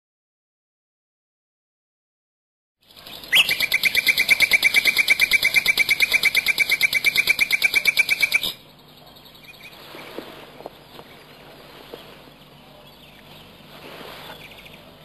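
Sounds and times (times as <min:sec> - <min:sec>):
rapid high-pitched bird trill: 0:02.8 - 0:09.9
faint bird chirps: 0:02.8 - 0:15.0.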